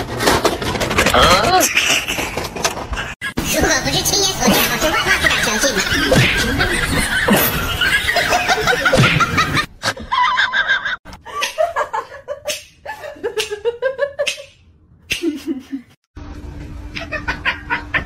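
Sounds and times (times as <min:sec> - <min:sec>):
people laughing: 0:04.4 - 0:14.4, 0:17.0 - 0:18.0.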